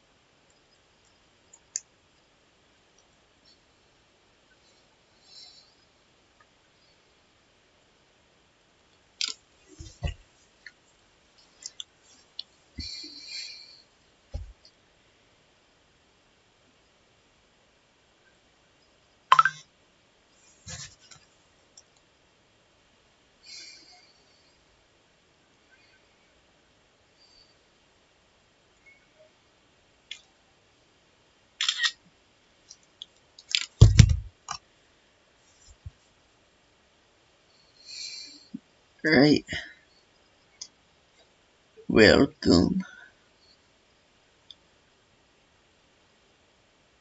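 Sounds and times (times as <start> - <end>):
dull knocks: 33.8 - 34.3
heavy low thump: 33.8 - 34.3.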